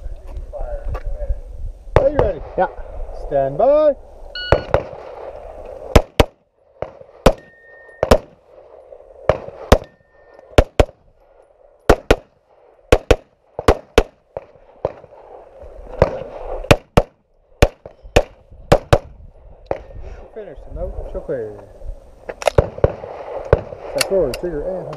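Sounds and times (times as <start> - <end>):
pistol shots: 4.5 - 5.3, 5.9 - 8.4, 9.2 - 11.0, 11.9 - 15.2, 15.9 - 19.1, 22.4 - 24.0.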